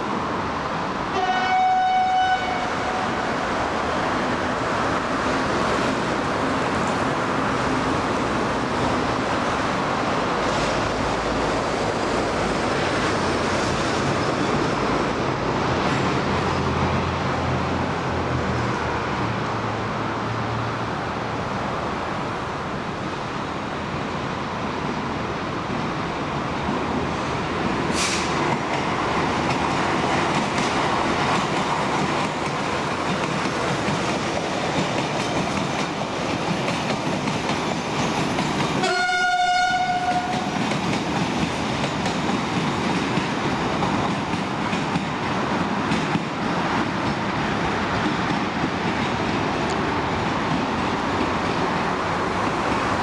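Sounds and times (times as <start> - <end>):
train approaching: 0.0 - 53.0
locomotive horn blast: 1.1 - 3.3, 38.8 - 40.5.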